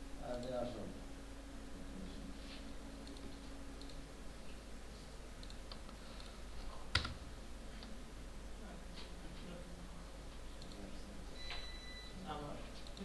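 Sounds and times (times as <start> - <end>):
low steady hum: 0.0 - 13.0
computer clicks: 0.3 - 0.6, 3.0 - 4.0, 5.4 - 7.2, 10.6 - 11.7, 12.8 - 13.0.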